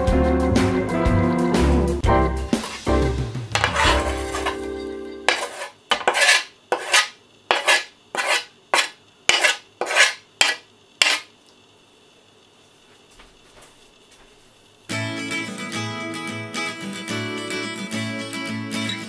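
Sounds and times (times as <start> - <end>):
knife scraping wooden board: 3.6 - 4.6, 5.3 - 11.3.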